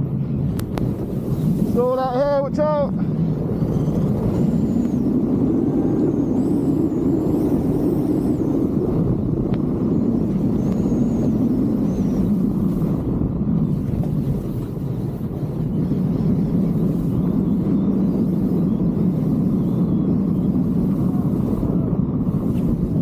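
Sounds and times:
wind buffeting microphone: 0:00.0 - 0:23.0
skis hissing through snow: 0:01.0 - 0:02.8, 0:13.7 - 0:23.0.

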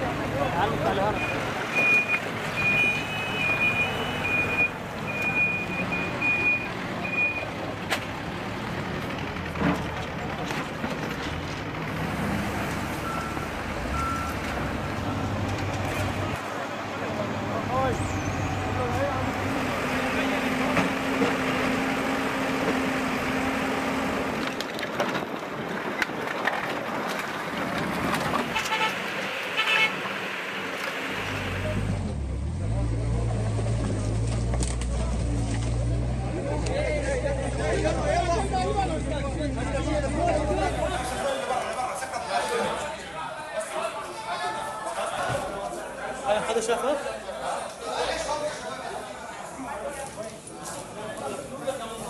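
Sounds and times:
reversing alarm beeping: 0:01.1 - 0:07.5, 0:13.0 - 0:15.0
diesel engine running: 0:06.7 - 0:24.6.

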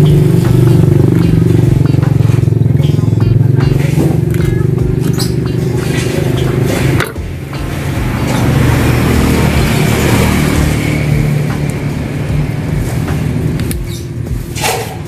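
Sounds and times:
engine rumbling: 0:00.0 - 0:15.0.

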